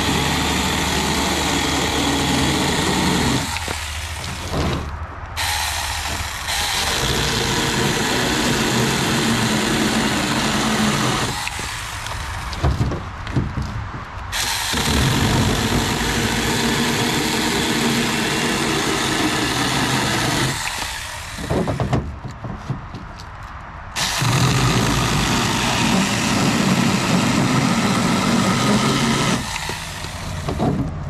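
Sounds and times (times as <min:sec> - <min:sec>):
electric chainsaw cutting branch: 0:00.0 - 0:12.7, 0:14.3 - 0:21.8, 0:24.0 - 0:30.7
knocks: 0:12.5 - 0:14.1, 0:21.4 - 0:23.2.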